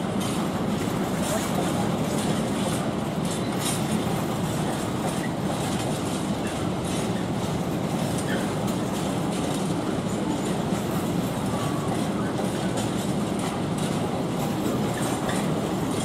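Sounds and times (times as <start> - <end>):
train wheels rumbling on rails: 0.0 - 16.0.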